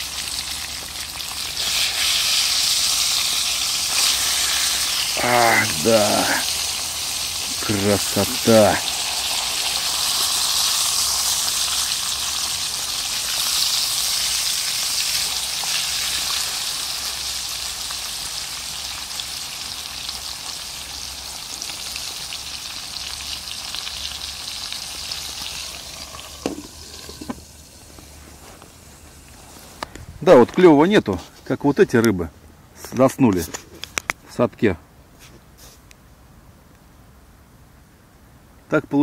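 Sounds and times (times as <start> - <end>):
fish sizzling in a pan: 0.0 - 29.6.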